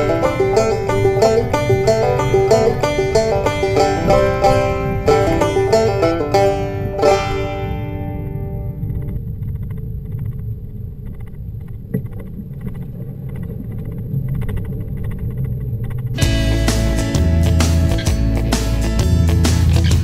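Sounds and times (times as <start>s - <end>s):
plucked banjo chord: 0.0s - 8.8s, 16.2s - 20.0s
car road rumble on dirt track: 0.0s - 20.0s.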